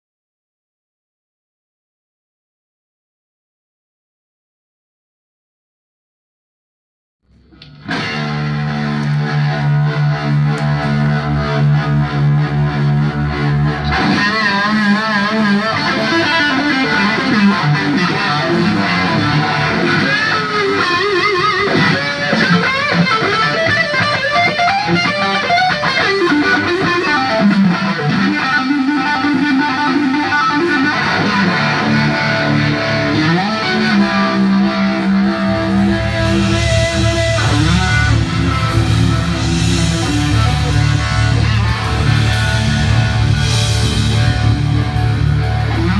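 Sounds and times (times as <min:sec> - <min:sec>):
low bass: 0:07.3 - 0:20.3, 0:31.2 - 0:45.9
distorted electric guitar: 0:07.3 - 0:45.9.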